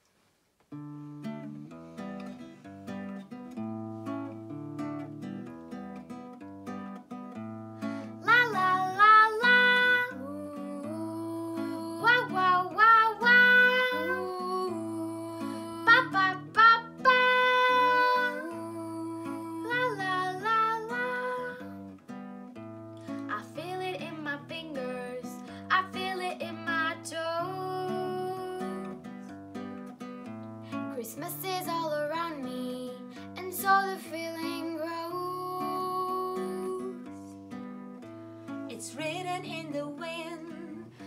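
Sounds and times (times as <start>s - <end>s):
nylon-string guitar chords: 0.8s - 41.0s
girl singing: 7.9s - 22.0s, 23.2s - 29.3s, 30.7s - 37.5s, 38.7s - 41.0s.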